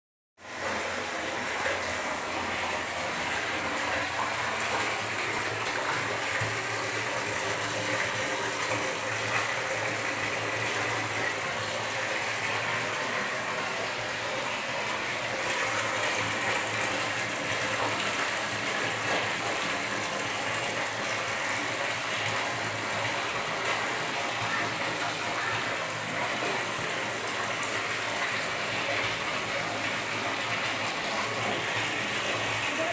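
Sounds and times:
water pouring into basin: 0.4s - 32.9s.

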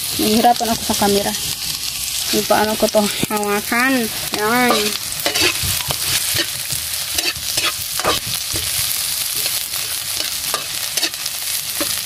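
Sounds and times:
food sizzling in a wok: 0.0s - 12.0s
metal spoon scraping a pan: 4.1s - 12.0s.

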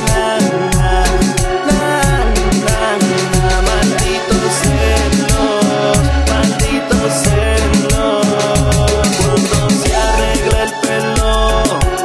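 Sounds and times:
instrumental pop music: 0.0s - 12.0s
deep bass hits: 0.7s - 5.4s, 6.0s - 8.0s, 8.6s - 10.6s.

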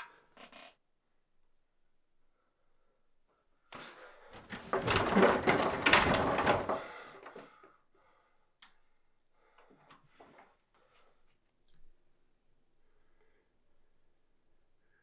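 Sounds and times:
wooden door rattling and banging: 4.4s - 7.1s
faint clicks: 8.6s - 8.9s.

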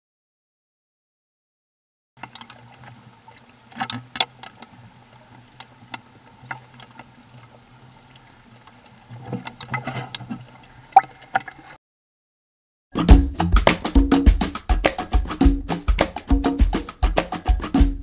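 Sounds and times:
water lapping at boat hull: 2.2s - 11.8s.

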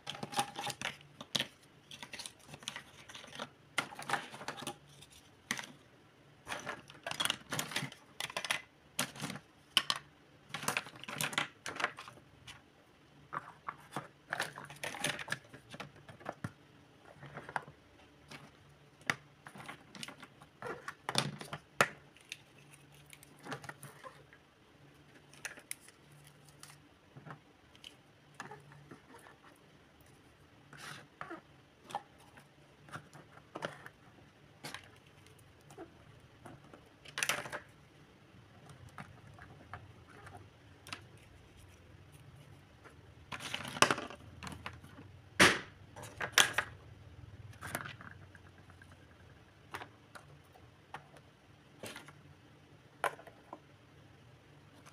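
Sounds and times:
plastic toy pieces clattering: 0.0s - 5.8s, 6.4s - 12.2s, 13.3s - 16.5s, 36.5s - 37.8s, 43.3s - 45.0s.

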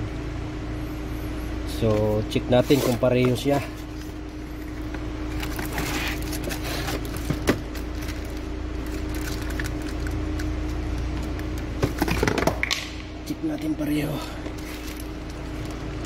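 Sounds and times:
steady low hum: 0.0s - 16.0s
plastic wrapping rustling: 5.3s - 11.6s, 14.5s - 16.0s.

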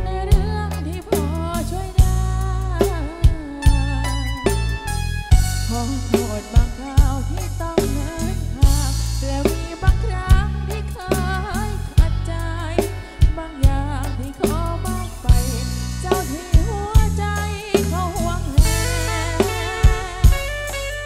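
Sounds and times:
woman singing into microphone: 0.0s - 4.8s, 5.5s - 21.0s
deep electric bass line: 0.0s - 21.0s
steady drum beat: 0.0s - 21.0s.

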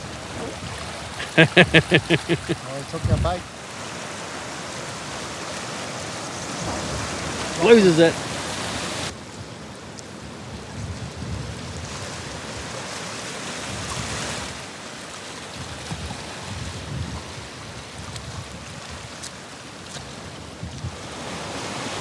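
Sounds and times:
surf washing against rocks: 0.0s - 22.0s
wind buffeting microphone: 2.1s - 3.5s, 10.4s - 12.8s, 15.6s - 19.3s.

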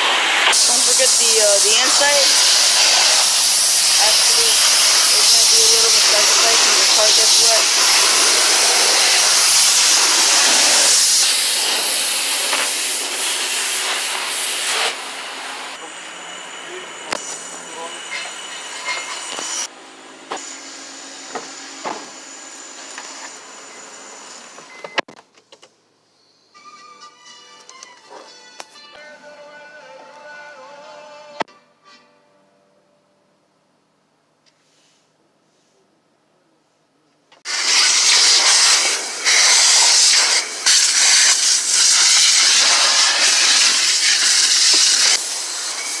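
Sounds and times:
vacuum hose sucking: 0.0s - 19.7s, 37.5s - 46.0s
car wash machinery hissing: 0.0s - 24.6s, 37.5s - 46.0s.

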